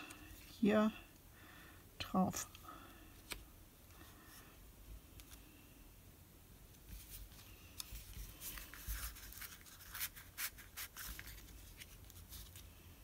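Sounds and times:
paper rustling: 0:06.9 - 0:12.7
scratchy brushing on card: 0:07.0 - 0:12.5.

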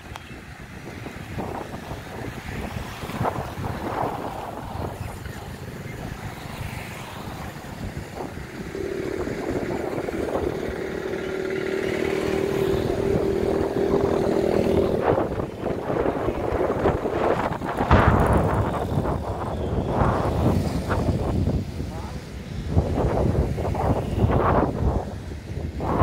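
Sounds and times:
wind on microphone: 0:00.0 - 0:26.0
freight train rumble: 0:00.7 - 0:26.0
steady hum: 0:08.2 - 0:17.2.

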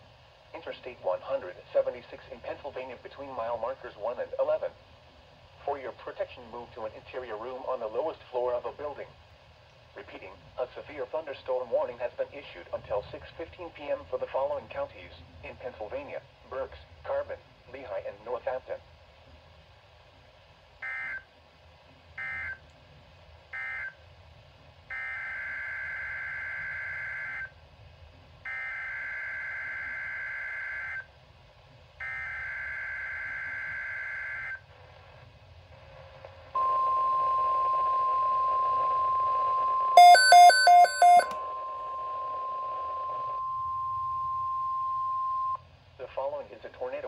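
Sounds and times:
loud quick beeps: 0:40.0 - 0:41.3
steady warning alert tone: 0:40.0 - 0:41.4.

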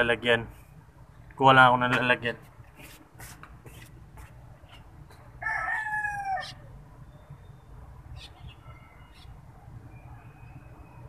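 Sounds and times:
rooster crowing: 0:05.4 - 0:06.7.

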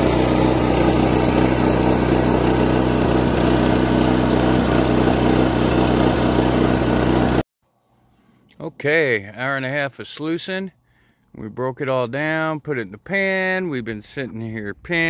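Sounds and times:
crusher grinding ore: 0:00.0 - 0:07.4
small gasoline engine running: 0:00.0 - 0:07.4.

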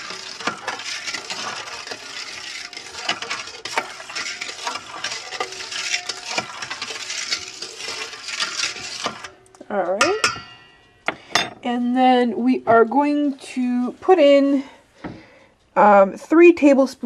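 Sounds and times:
spoon scraping metal bowl: 0:00.0 - 0:11.4.

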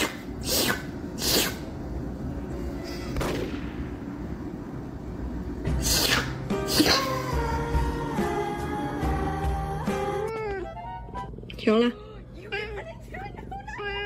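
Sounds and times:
sneeze-like breathy bursts: 0:00.0 - 0:01.7, 0:05.7 - 0:07.2
faint background music: 0:05.4 - 0:14.0.

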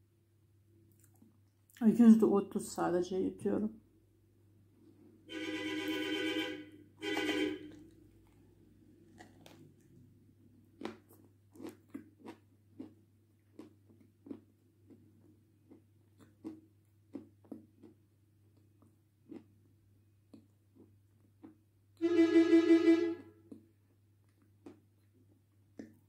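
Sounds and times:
clay being bitten and chewed: 0:07.7 - 0:21.7, 0:23.4 - 0:26.0.

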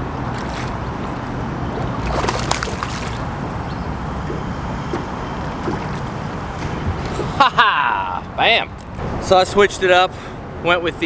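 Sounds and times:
water sloshing and splashing: 0:00.0 - 0:07.4.

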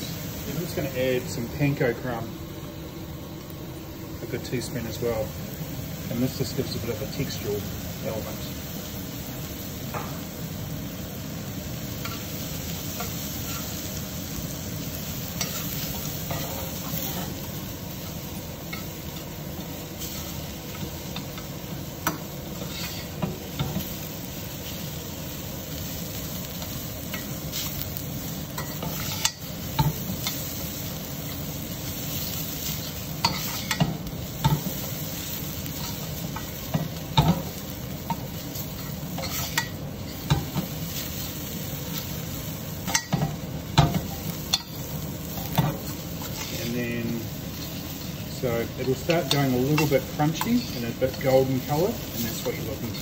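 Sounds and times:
food sizzling in oil: 0:00.0 - 0:53.0
metal spoon scraping pan: 0:22.6 - 0:23.8, 0:28.6 - 0:30.4, 0:32.8 - 0:34.7, 0:38.1 - 0:40.6.

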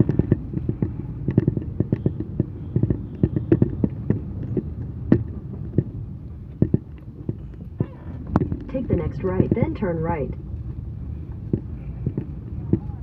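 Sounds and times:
car engine and tyre rumble: 0:00.0 - 0:13.0.

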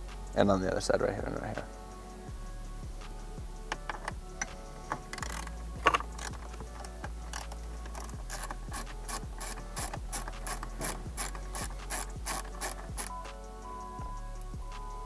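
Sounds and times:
ratchet wrench clicking: 0:03.7 - 0:13.3.

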